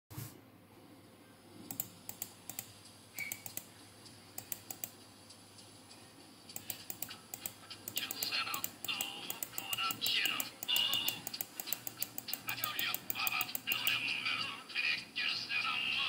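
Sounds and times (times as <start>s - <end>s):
keyboard typing: 1.6s - 5.0s, 5.6s - 14.1s.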